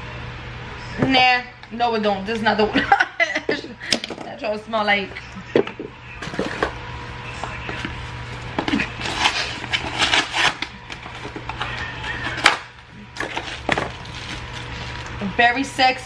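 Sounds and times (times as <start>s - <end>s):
cardboard box tearing: 8.7s - 10.7s.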